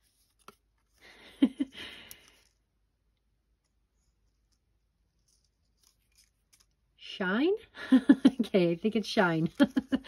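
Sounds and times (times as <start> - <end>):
paper rustling and clicking in hand: 0.0 - 1.1, 3.5 - 7.0, 8.2 - 10.0.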